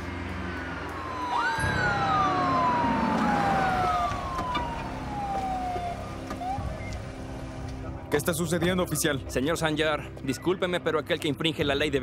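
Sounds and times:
police sirens wailing: 0.0s - 7.9s.

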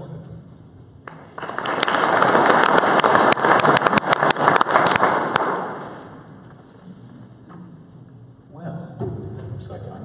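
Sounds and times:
audience applause: 1.1s - 6.3s.

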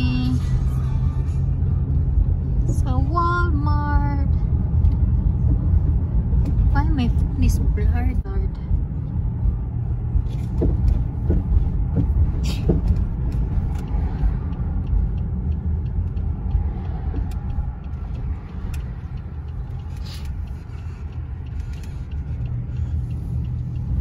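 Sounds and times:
car cabin road and engine rumble: 0.0s - 24.0s
light ticks: 10.3s - 24.0s.

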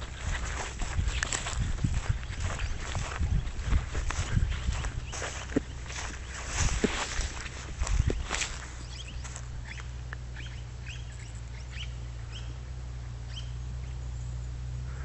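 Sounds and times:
birds chirping: 0.0s - 15.0s
steady low hum: 0.0s - 15.0s.

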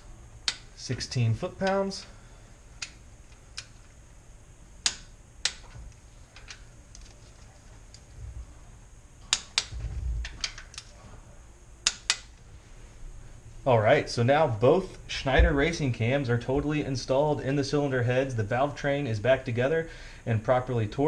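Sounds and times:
soft low thumps: 15.3s - 15.9s.

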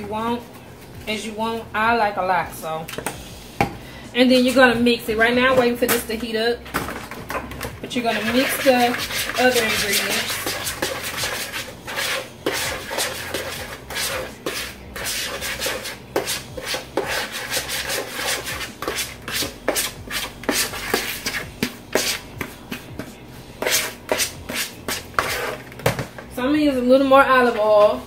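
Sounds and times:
spoon scraping in plastic bowl: 6.7s - 26.0s.

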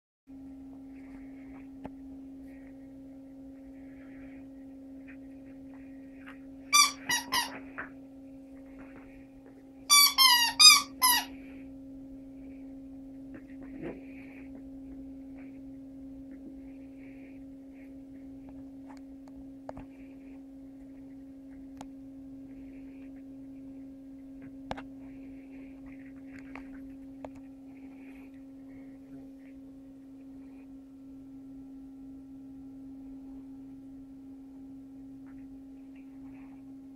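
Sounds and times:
steady low hum: 0.3s - 36.9s
squeaky dog toy squeaking: 6.7s - 7.6s, 9.9s - 11.4s.

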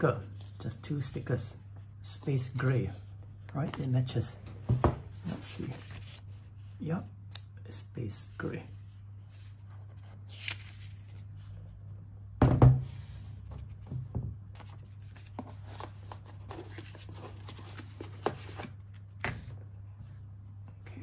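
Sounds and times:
low steady hum: 0.0s - 21.0s
paper rustling: 5.2s - 6.4s, 9.4s - 11.4s, 14.6s - 19.5s.

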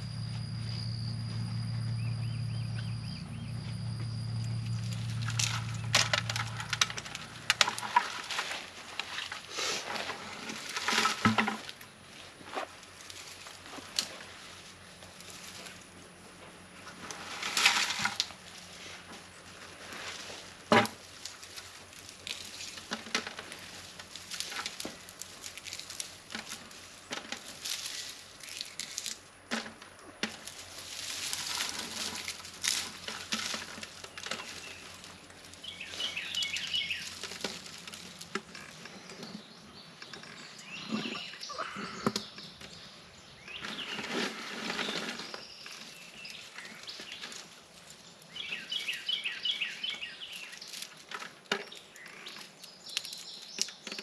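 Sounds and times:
birds chirping: 0.0s - 7.8s, 34.0s - 37.3s, 38.0s - 47.4s, 48.1s - 50.8s
seed pods crackling and rustling: 4.6s - 15.8s, 16.9s - 41.3s, 43.5s - 54.0s.

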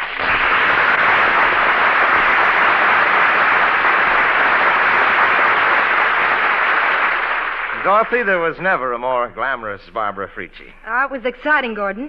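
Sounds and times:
audience applauding: 0.0s - 9.3s.

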